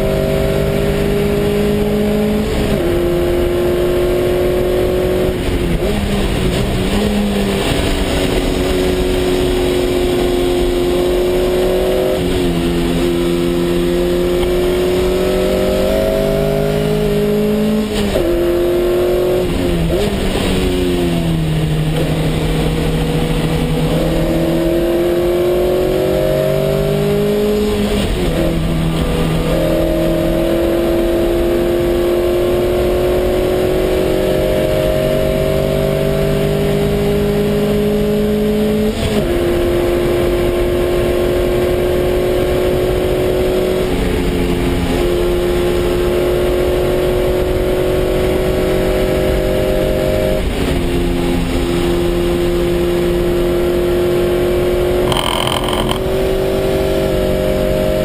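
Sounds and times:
race car engine accelerating: 0.0s - 58.0s
gear upshifts: 55.0s - 56.2s.

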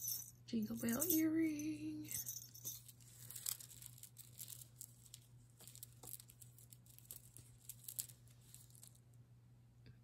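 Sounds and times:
beads clicking together: 2.1s - 9.0s.

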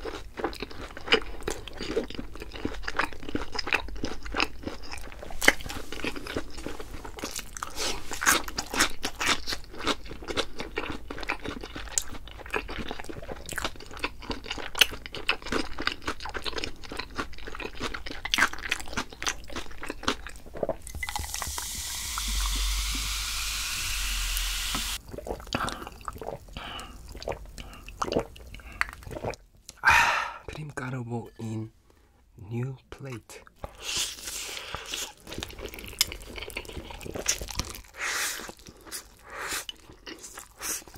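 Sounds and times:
crunching fried food: 0.0s - 22.7s, 33.7s - 40.9s
steady rushing hiss: 21.3s - 25.0s.

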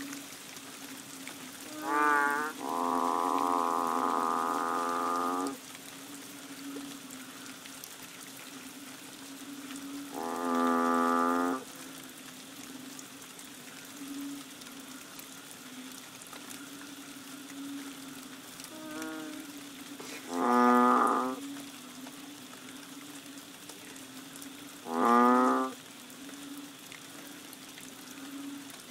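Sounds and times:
bullfrogs calling: 1.6s - 5.7s, 9.8s - 11.8s, 16.5s - 22.1s, 24.4s - 27.3s.

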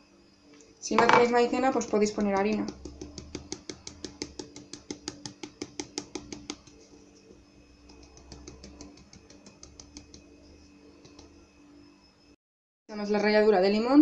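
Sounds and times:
sieve tapping: 0.9s - 7.0s, 7.8s - 10.3s.

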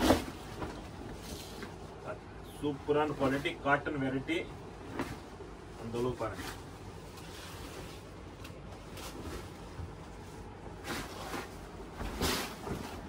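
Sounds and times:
low steady hum: 0.0s - 13.0s
bed sheet rustling and swishing: 4.8s - 13.0s.

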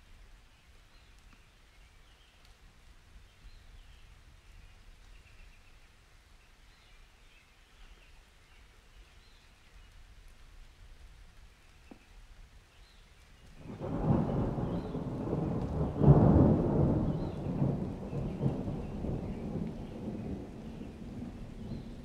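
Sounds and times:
low storm rumble: 13.5s - 22.0s.

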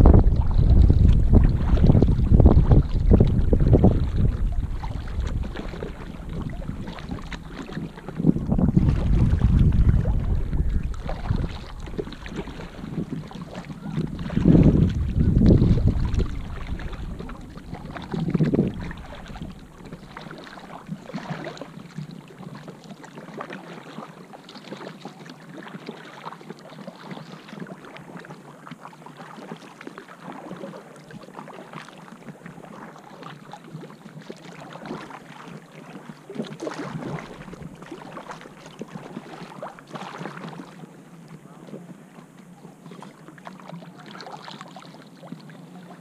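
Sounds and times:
wind buffeting microphone: 0.0s - 20.3s
kayak paddle strokes: 0.0s - 46.0s
water splashing against hull: 0.0s - 46.0s.

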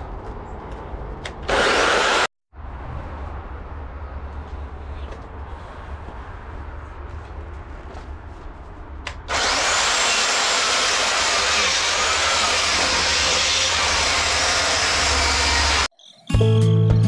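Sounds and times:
electric chainsaw cutting wood: 1.5s - 2.3s, 9.3s - 15.9s.

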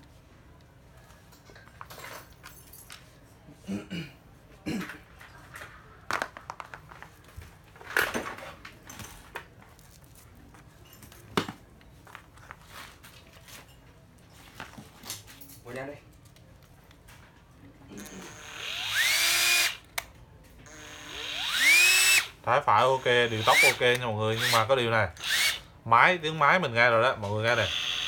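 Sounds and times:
cordless drill parts rattling: 18.0s - 19.8s, 20.7s - 25.6s, 27.6s - 28.0s.

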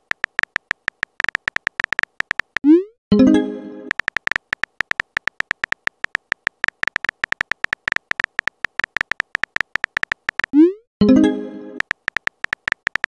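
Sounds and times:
keyboard key-tap clicks: 0.0s - 2.7s, 3.9s - 10.6s, 11.8s - 13.0s.

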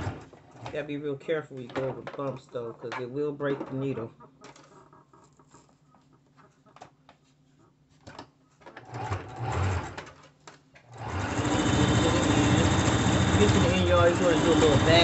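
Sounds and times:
sewing machine stitching: 0.0s - 0.7s, 8.8s - 10.1s, 10.9s - 15.0s.

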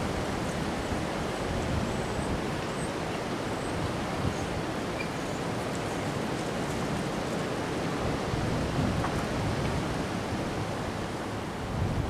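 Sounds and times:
wind rushing through trees: 0.0s - 12.0s
wind buffeting microphone: 5.5s - 12.0s.

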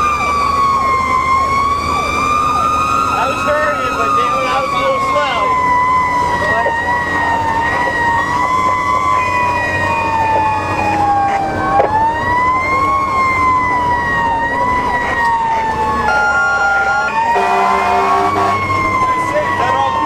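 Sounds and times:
siren wailing: 0.0s - 20.0s
truck engine: 0.0s - 20.0s
horn blasts: 16.1s - 18.8s.

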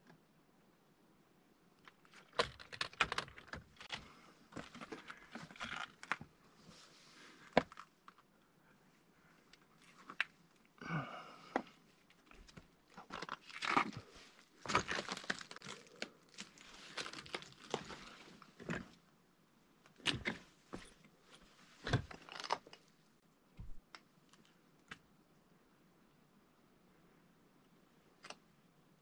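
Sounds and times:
footsteps crunching on rubble: 12.4s - 15.8s.

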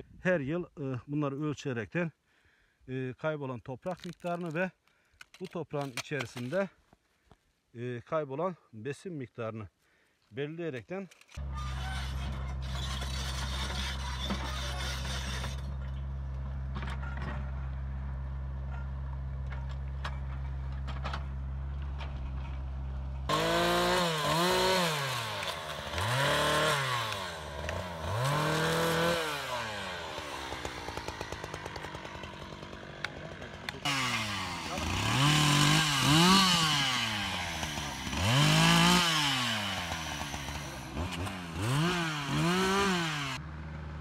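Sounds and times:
chainsaw idling: 23.3s - 44.0s
chainsaw revving: 23.3s - 44.0s.

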